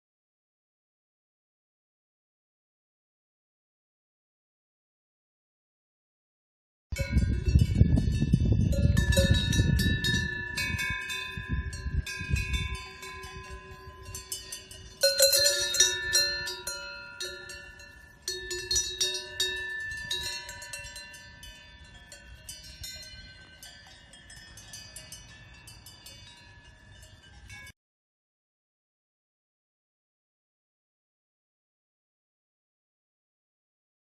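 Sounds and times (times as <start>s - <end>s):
cowbells clanking: 7.0s - 27.7s.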